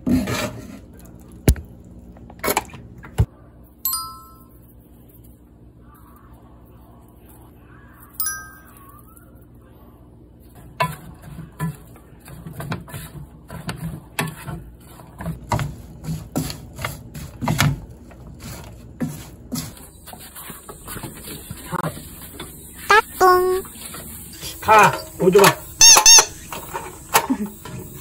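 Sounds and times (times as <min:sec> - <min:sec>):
bright chime ding: 0:03.9 - 0:04.5, 0:08.2 - 0:09.0.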